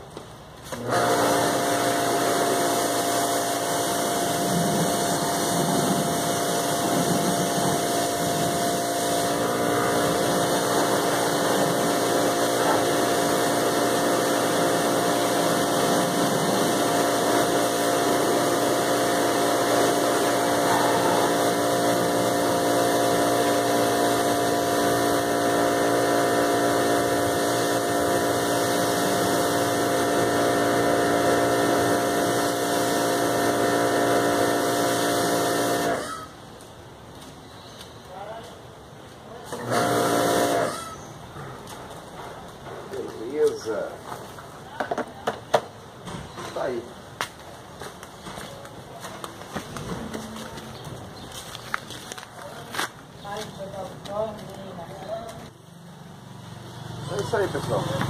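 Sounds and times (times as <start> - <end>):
pressure washer motor hum: 0.7 - 36.3, 39.5 - 41.0, 56.9 - 58.0
high-pressure water jet hissing: 0.8 - 36.3, 39.5 - 41.0.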